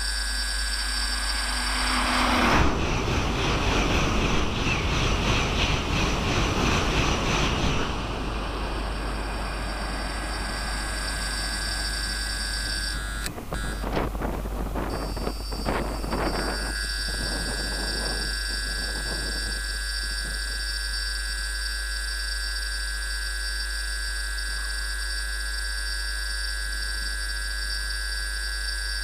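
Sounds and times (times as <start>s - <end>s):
high-speed train passing: 0.8s - 20.6s.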